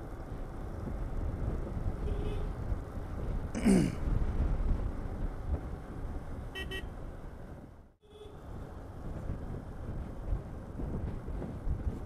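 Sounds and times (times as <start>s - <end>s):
motorcycle engine rumble: 0.0s - 12.0s
wind noise: 0.0s - 12.0s.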